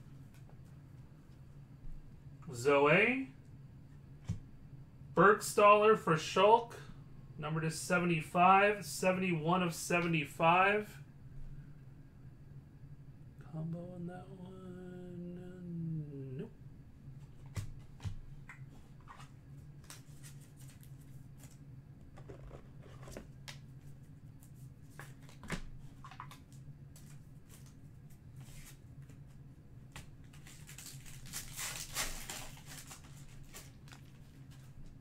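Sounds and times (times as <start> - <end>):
wrapper tearing and crinkling: 30.2 - 34.6.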